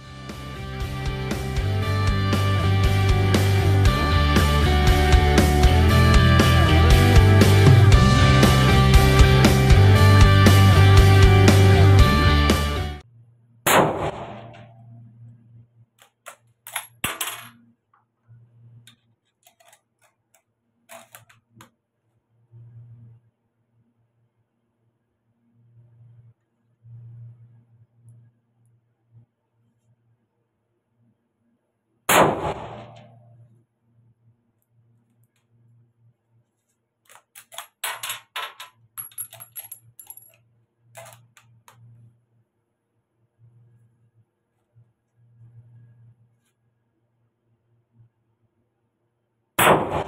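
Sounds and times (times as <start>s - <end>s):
rifle shot indoors: 13.6s - 14.9s, 32.1s - 33.4s, 49.6s - 50.0s
rifle bolt clicking and clacking: 19.4s - 20.1s, 20.9s - 21.4s, 37.1s - 40.4s, 41.0s - 41.4s.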